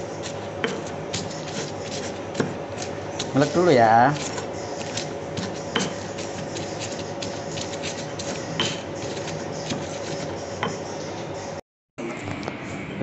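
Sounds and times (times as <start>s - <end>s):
stone pestle grinding in mortar: 0.0s - 11.6s.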